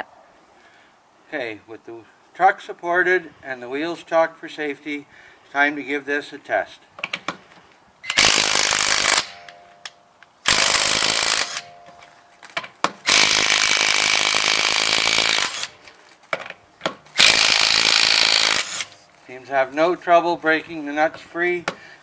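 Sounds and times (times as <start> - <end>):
impact wrench hammering: 16.4 - 18.8.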